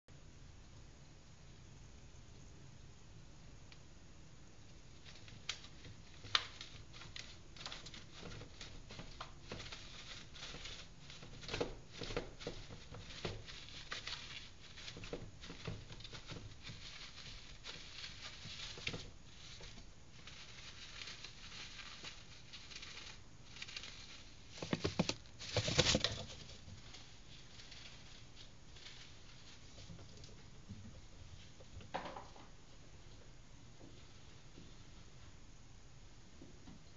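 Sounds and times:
rodent scratching and rustling: 4.6s - 31.7s.

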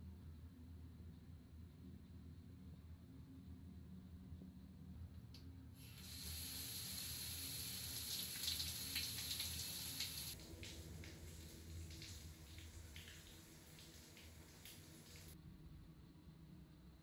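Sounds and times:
shower spraying water: 5.8s - 15.4s
water dripping: 5.8s - 15.4s.

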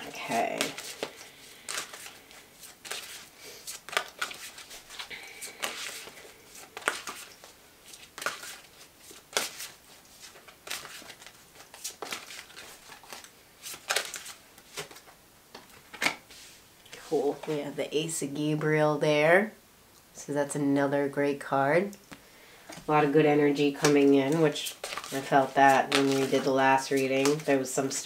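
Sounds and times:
cards shuffling and rustling: 0.0s - 16.5s, 23.6s - 28.0s.

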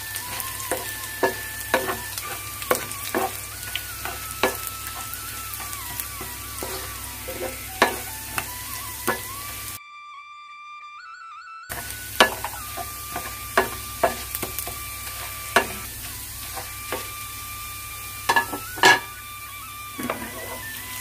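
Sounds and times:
food sizzling in hot oil: 0.0s - 9.8s, 11.7s - 21.0s
flute-like background music: 0.0s - 21.0s
spatula knocking against a pan: 0.7s - 3.4s, 6.6s - 8.5s, 11.8s - 14.8s, 18.3s - 19.1s.

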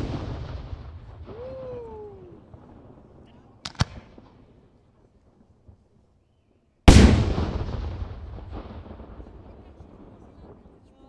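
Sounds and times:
firework bang with rumbling echo: 0.0s - 4.4s, 6.9s - 10.8s.

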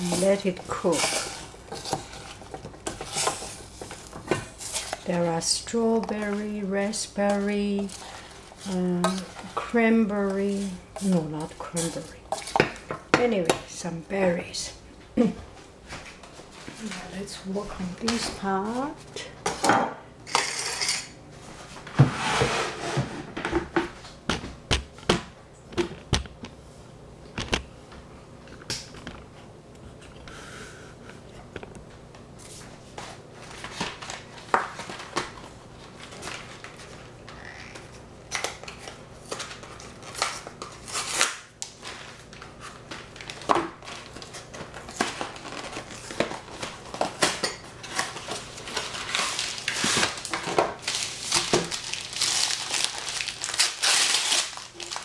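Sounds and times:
dishes and utensils clinking: 19.5s - 21.2s
crinkling and rustling: 31.4s - 55.0s.

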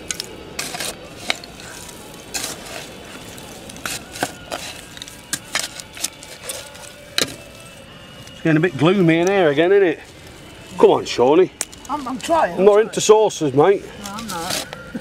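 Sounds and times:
hands scraping through soil: 0.0s - 10.9s.

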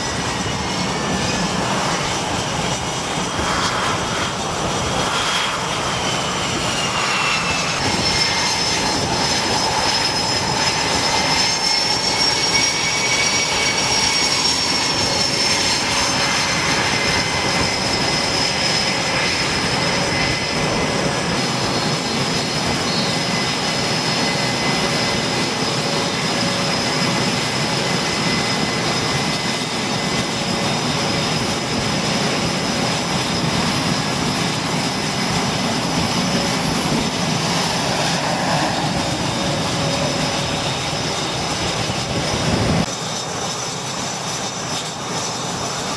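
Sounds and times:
jet engines running: 0.0s - 45.9s.

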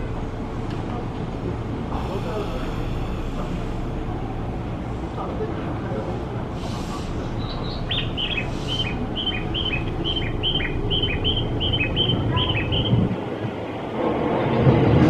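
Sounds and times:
electric train low rumble: 0.0s - 15.0s
short hisses: 1.9s - 4.1s, 6.5s - 7.4s, 8.3s - 9.1s
two-note bird-like chirping: 7.5s - 13.0s.

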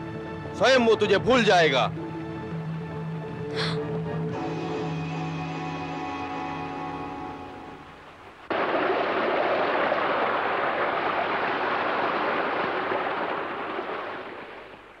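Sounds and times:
stream rushing over stones: 7.9s - 15.0s.

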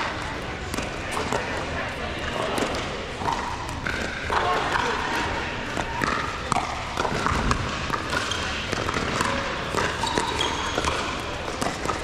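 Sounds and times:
crowd voices: 0.0s - 12.0s
basketball bouncing on court: 3.2s - 12.0s.

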